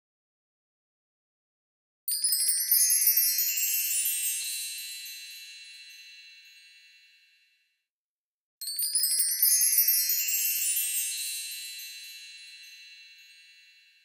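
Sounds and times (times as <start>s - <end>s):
bright tinkling chimes: 2.1s - 7.8s, 8.6s - 14.0s.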